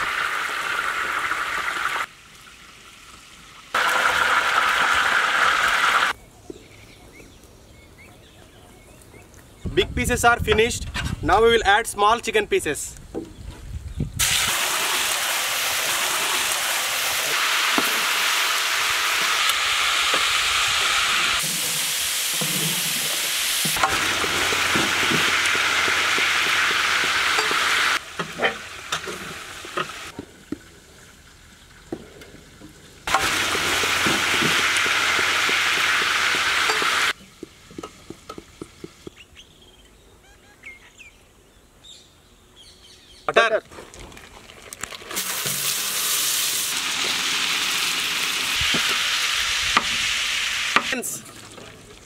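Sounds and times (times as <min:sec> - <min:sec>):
chicken deep-frying in hot oil: 0:00.0 - 0:06.2, 0:14.2 - 0:37.5, 0:44.6 - 0:52.0.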